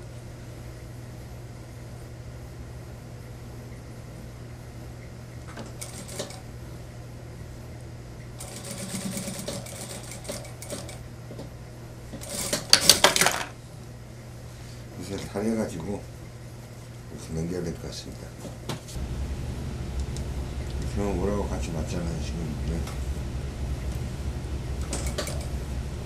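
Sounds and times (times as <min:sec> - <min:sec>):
low hum: 0:19.0 - 0:26.0.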